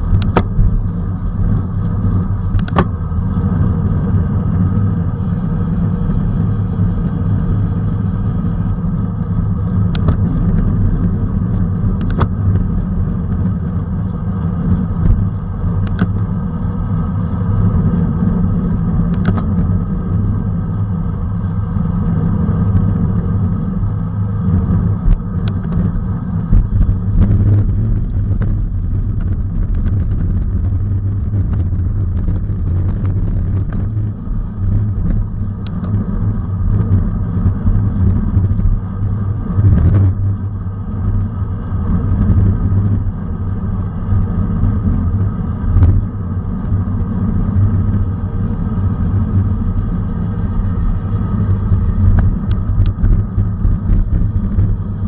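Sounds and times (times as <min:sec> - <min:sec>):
sharp clicks and knocks: 0:00.0 - 0:00.9, 0:02.5 - 0:03.0
wind rumble on microphone: 0:00.0 - 0:55.0.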